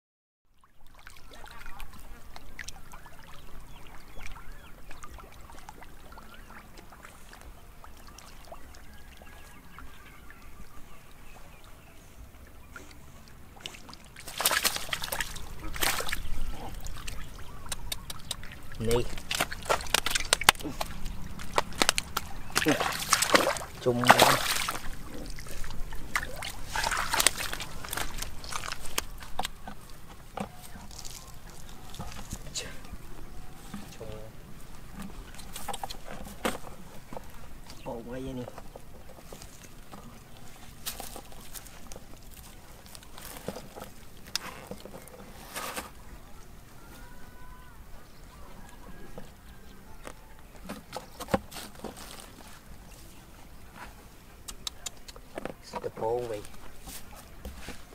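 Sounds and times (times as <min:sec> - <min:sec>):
fish splashing in a puddle: 0:13.6 - 0:32.6
hands squelching in mud: 0:13.6 - 0:32.9.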